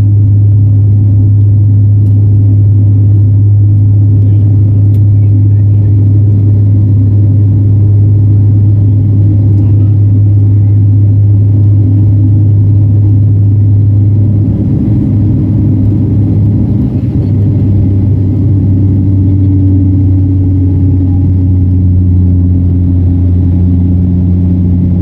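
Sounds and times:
turboprop engine drone in cabin: 0.0s - 25.0s.

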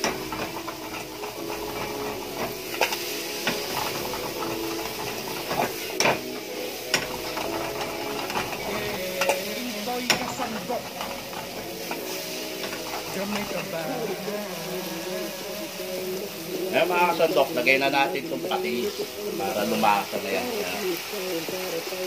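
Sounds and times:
utensil clicking on pan: 0.0s - 13.9s
utensil scraping pan: 0.0s - 19.8s
vegetables sizzling in pan: 0.0s - 22.0s.

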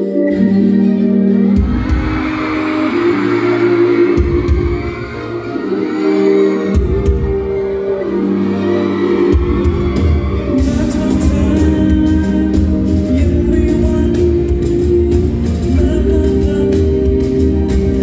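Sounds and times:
loud pop music: 0.0s - 18.0s
drum beat: 4.2s - 5.0s, 6.8s - 7.6s, 9.4s - 18.0s
deep bass line: 9.4s - 18.0s.

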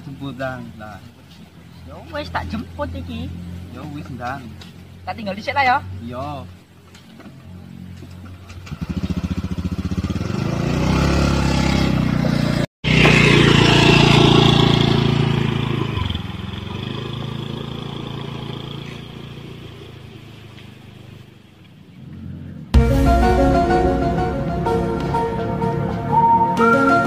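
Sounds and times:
motor scooter engine revving: 7.3s - 21.0s.

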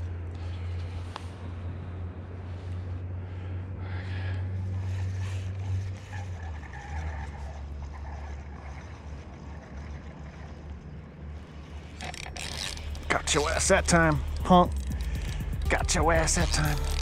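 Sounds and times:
boat motor humming: 0.0s - 17.0s.

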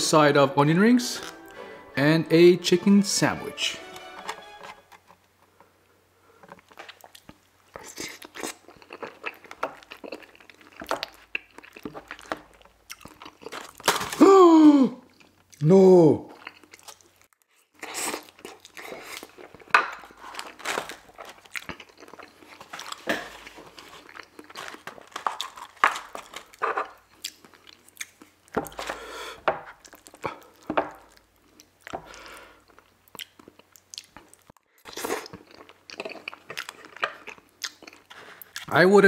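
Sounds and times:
chewing food: 6.5s - 13.9s, 16.3s - 29.0s, 29.7s - 38.7s.

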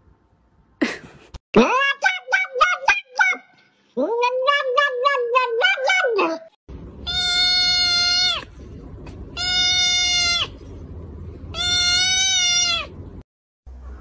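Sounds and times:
kitten crying: 4.1s - 8.5s, 9.4s - 10.6s, 11.5s - 12.9s.

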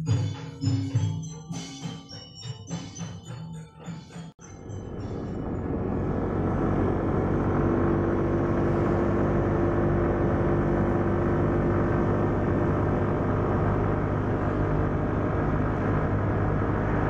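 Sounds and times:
car engine and tyre noise: 4.8s - 17.0s.

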